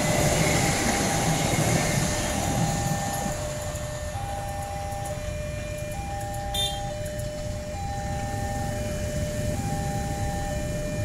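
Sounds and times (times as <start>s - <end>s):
train rumbling on rails: 0.0s - 11.0s
two-tone crossing alarm: 0.0s - 11.0s.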